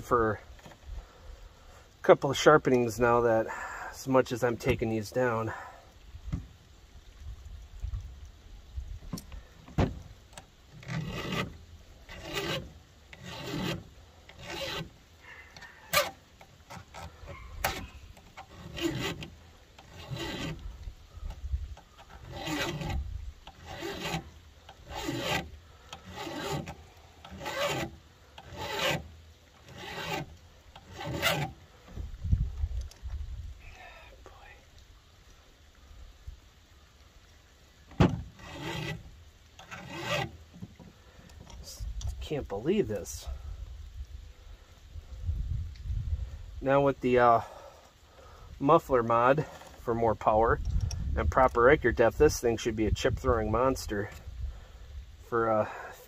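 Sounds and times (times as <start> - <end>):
file rasping on chainsaw chain: 10.7 - 20.8, 21.9 - 31.6, 38.4 - 40.4.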